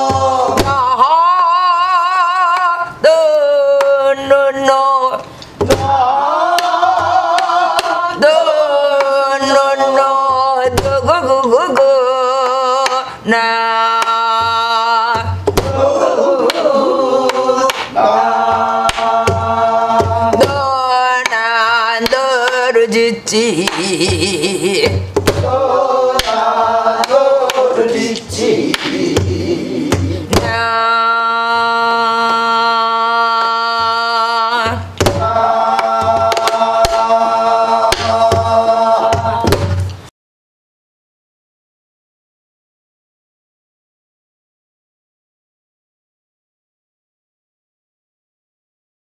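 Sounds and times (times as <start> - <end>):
wordless folk singing with vibrato: 0.0 - 40.1
barrel drum strokes: 25.0 - 25.6.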